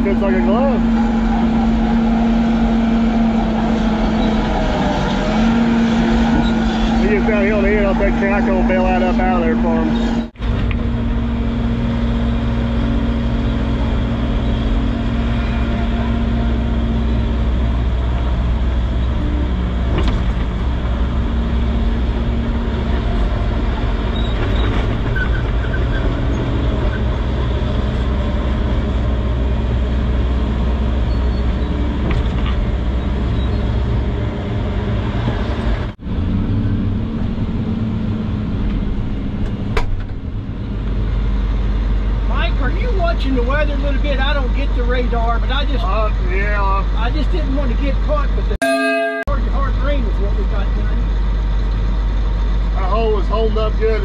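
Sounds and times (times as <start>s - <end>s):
excavator engine droning: 0.0s - 42.3s.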